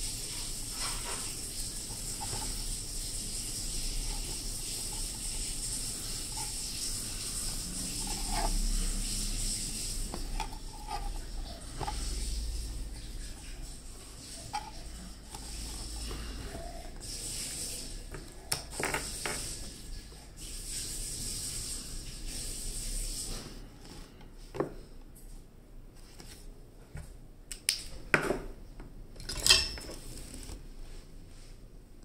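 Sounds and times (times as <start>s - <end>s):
soft scratchy rubbing: 0.2s - 18.2s.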